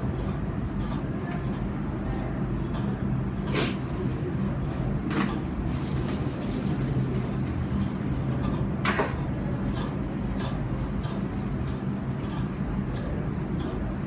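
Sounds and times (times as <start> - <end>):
room hum: 0.0 - 14.0
short hissing: 3.5 - 3.9.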